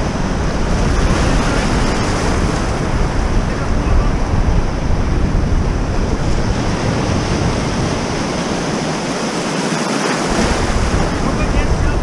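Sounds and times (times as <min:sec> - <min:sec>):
wind buffeting microphone: 0:00.0 - 0:12.0
small waves breaking: 0:06.4 - 0:12.0.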